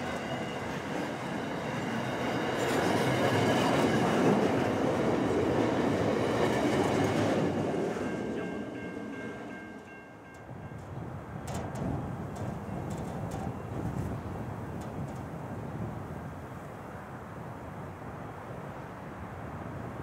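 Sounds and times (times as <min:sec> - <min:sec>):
train wheels clattering on rails: 0:00.0 - 0:15.5.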